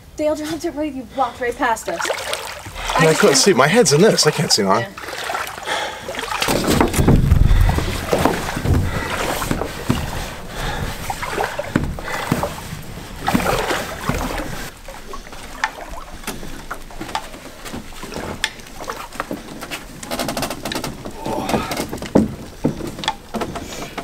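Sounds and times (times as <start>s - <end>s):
water splashing around canoe: 1.6s - 24.0s
knocks against hull: 6.1s - 14.7s, 15.4s - 24.0s.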